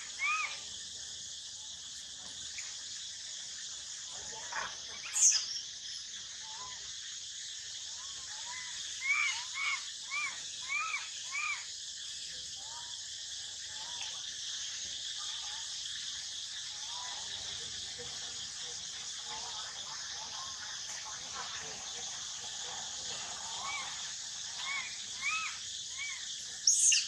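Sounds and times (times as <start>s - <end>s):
monkey coo calls: 0.0s - 0.6s, 8.4s - 11.6s, 24.6s - 27.0s
crickets chirping: 0.0s - 27.0s.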